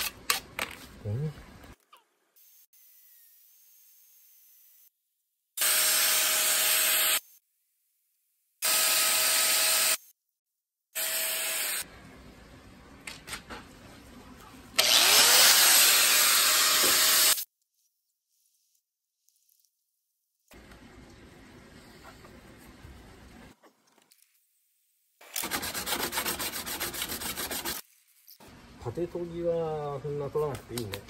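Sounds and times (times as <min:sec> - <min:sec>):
angle grinder cutting: 0:05.6 - 0:07.3, 0:08.6 - 0:10.0, 0:11.0 - 0:11.9, 0:14.8 - 0:17.4.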